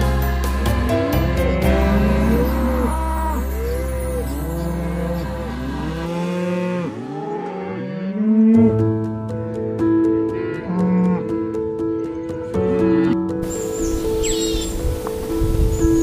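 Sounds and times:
background music with ticking beat: 0.0s - 3.4s, 4.7s - 15.6s
cows mooing: 1.1s - 8.8s, 10.3s - 11.5s.

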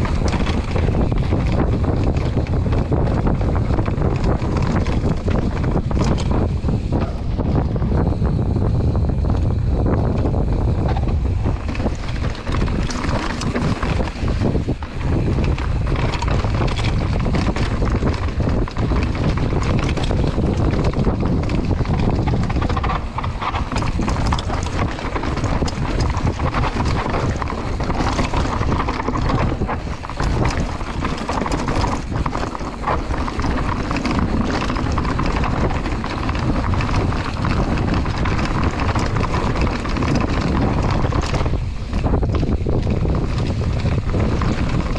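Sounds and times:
bike rattling: 0.0s - 44.9s
bike tyres clattering over stones: 0.0s - 44.9s
wind buffeting microphone: 0.0s - 44.9s.

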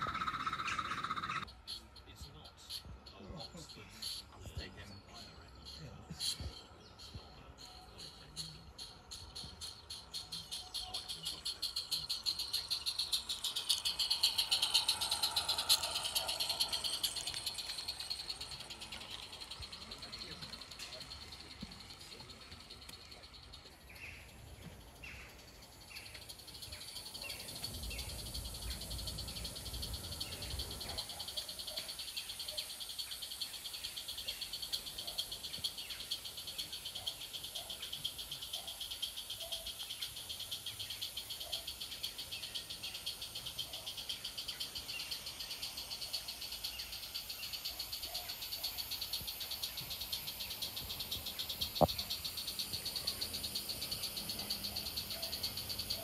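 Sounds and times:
steam locomotive chuffing: 10.0s - 23.7s.

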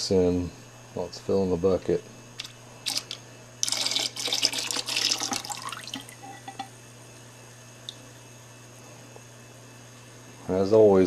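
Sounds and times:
syrup pouring into liquid: 2.9s - 6.3s.

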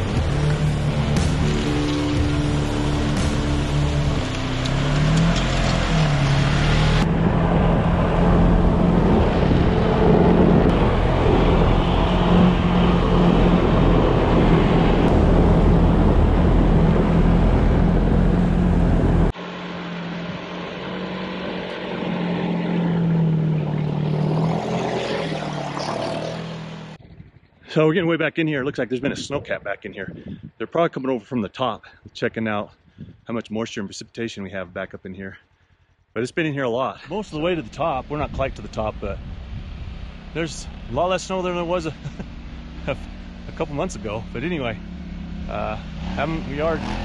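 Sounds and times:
vehicle engine revving: 0.0s - 27.0s, 37.0s - 47.0s
snow tracks rumbling: 36.9s - 44.8s, 45.5s - 47.0s.

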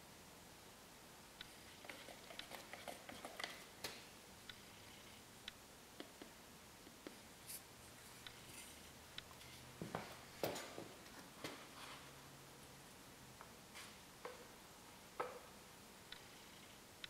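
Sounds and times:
stir stick scraping plastic cup: 1.5s - 3.7s.

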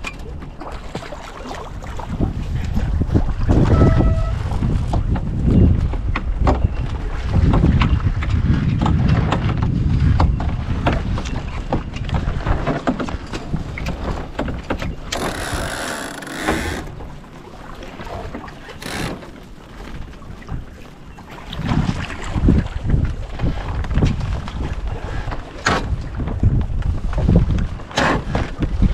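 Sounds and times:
water slapping along hulls: 0.0s - 28.9s
wind buffeting microphone: 1.4s - 28.9s
short knocks and clicks: 14.4s - 17.0s, 18.8s - 19.4s.

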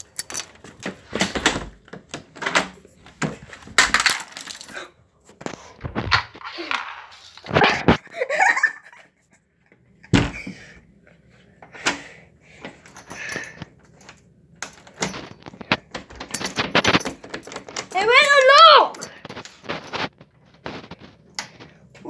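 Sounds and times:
laughter-like voice sounds: 7.6s - 9.4s.

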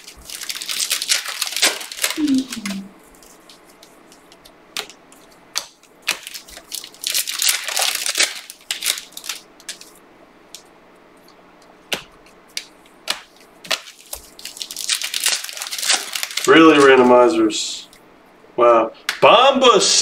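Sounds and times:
plastic crinkling: 0.0s - 18.0s.

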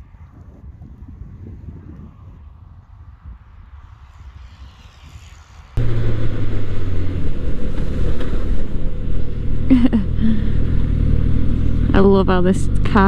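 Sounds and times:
wind noise: 0.0s - 13.0s
road noise: 2.3s - 13.0s
motorcycle engine cruising: 3.8s - 13.0s.

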